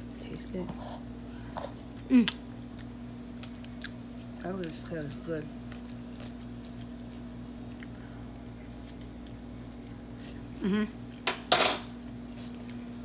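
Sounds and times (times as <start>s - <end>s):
low room hum: 0.0s - 13.0s
woman humming mm: 10.5s - 11.0s.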